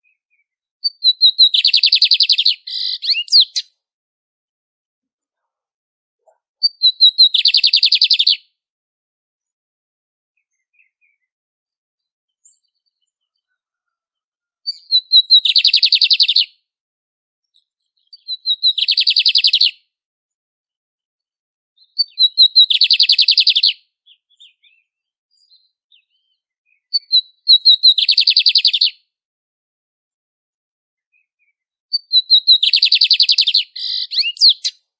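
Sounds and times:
bird song with rapid trill: 0.0 - 3.8, 6.2 - 8.6, 10.4 - 16.7, 17.4 - 20.0, 21.8 - 29.2, 31.0 - 34.9.

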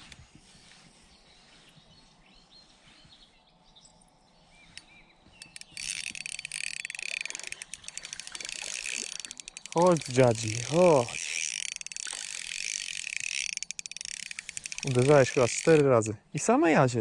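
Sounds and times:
fishing reel cranking clicks: 5.4 - 16.0.

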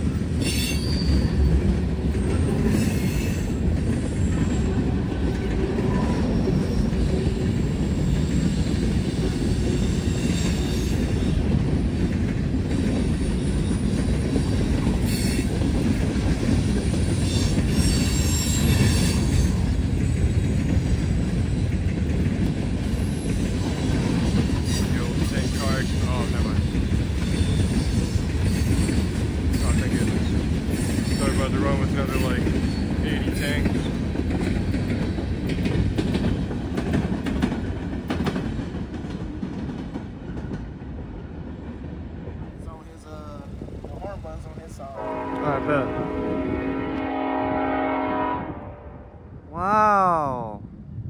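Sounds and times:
train wheels rumbling on rail: 0.0 - 49.4
wheel squeals: 0.4 - 1.5, 16.6 - 20.5.

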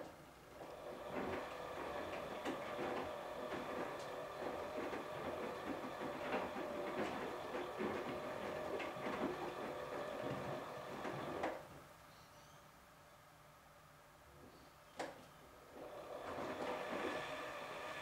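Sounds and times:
washing machine motor hum: 0.0 - 11.7, 15.6 - 18.0.

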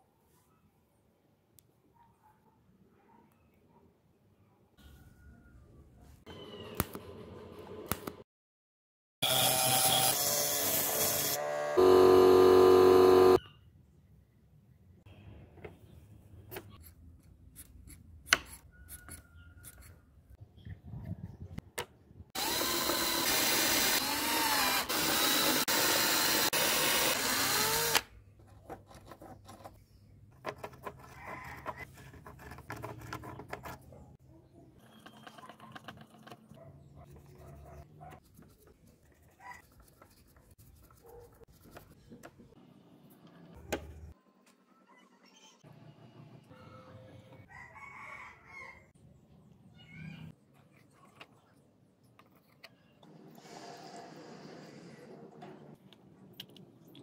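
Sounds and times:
electric drill boring into plastic: 9.2 - 13.4, 22.4 - 28.1.

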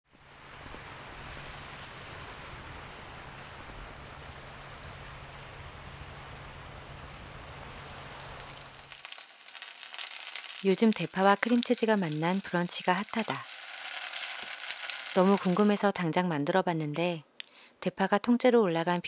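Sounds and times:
wind: 0.0 - 19.0
food frying in oil: 8.2 - 16.0.

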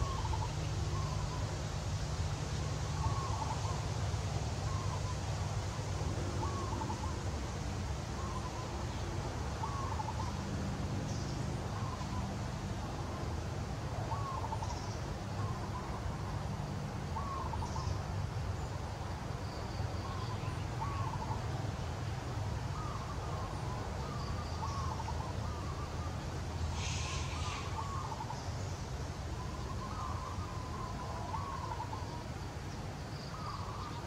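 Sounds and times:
rustling hiss: 0.0 - 34.0
short bird calls: 22.7 - 28.5.

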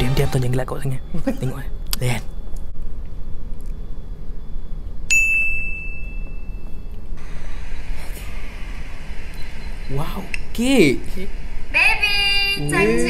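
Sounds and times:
high metallic ding: 5.1 - 6.9.

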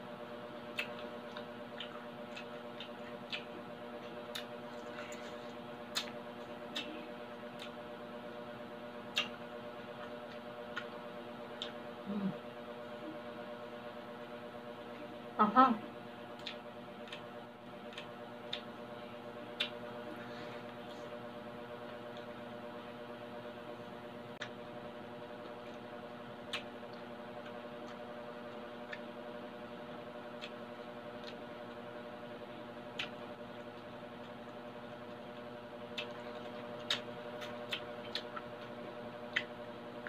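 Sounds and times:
droning hum: 0.0 - 40.0
crunchy chewing: 0.6 - 8.0, 8.9 - 12.2, 16.2 - 22.4, 25.4 - 40.0.

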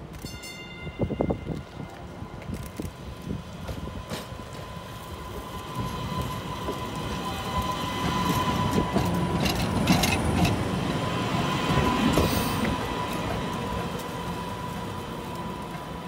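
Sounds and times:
train wheels rumbling on rails: 0.0 - 16.0
wheels clicking over track: 5.3 - 16.0.

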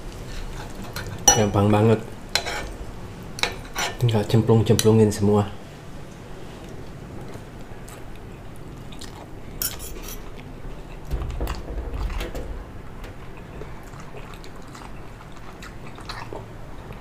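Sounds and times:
dull low bump: 11.0 - 15.0.

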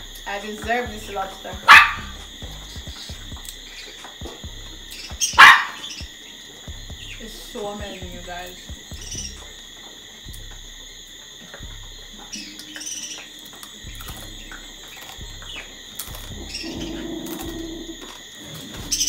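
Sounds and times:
birds chirping: 0.0 - 19.0
high insect drone: 0.0 - 19.0
person eating with fingers: 13.4 - 18.8.

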